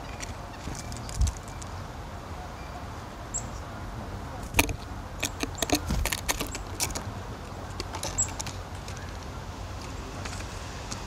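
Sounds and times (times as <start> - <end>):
bird ticks and rustles: 0.0 - 1.8, 4.4 - 11.0.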